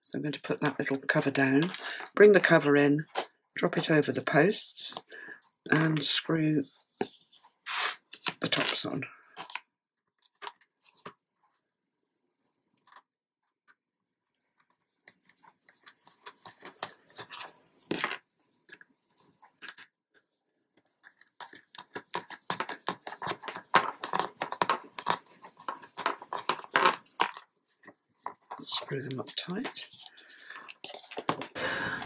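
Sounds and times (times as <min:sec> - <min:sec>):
screw caps scratching and clicking: 0:15.0 - 0:32.0.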